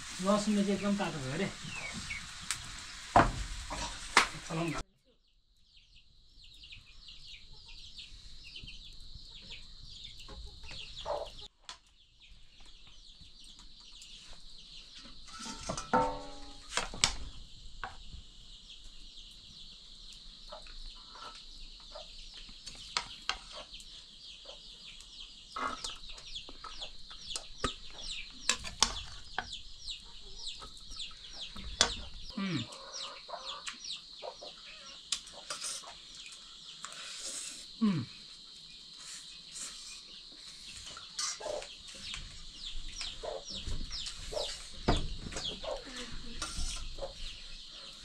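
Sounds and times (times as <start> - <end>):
chickens clucking: 0.0 - 4.8, 6.8 - 11.5, 20.1 - 48.0
dense high-pitched chirping: 0.0 - 48.0.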